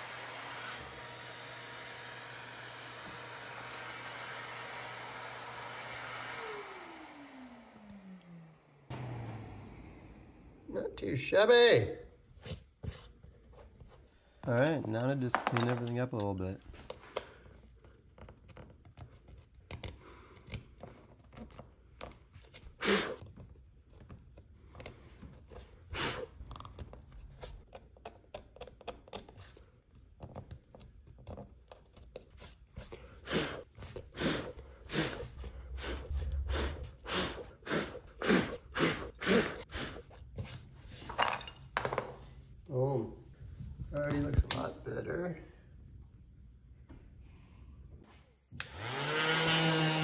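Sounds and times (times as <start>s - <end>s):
hand tool scraping wood: 32.3s - 41.2s.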